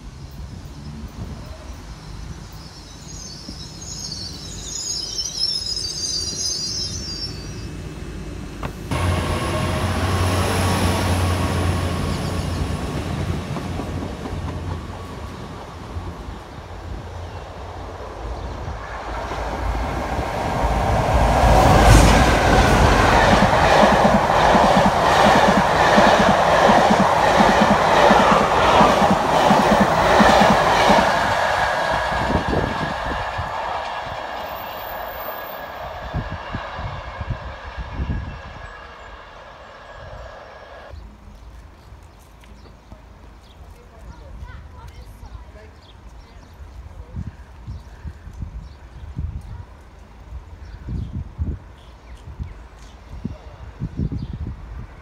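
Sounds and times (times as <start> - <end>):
train passing at speed: 0.0 - 41.2
wheels clacking over rail joints: 18.9 - 35.4.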